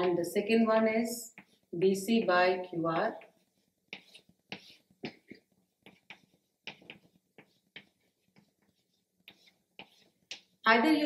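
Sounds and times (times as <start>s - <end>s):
chalk tapping and scratching on board: 1.3s - 1.9s, 2.6s - 10.6s.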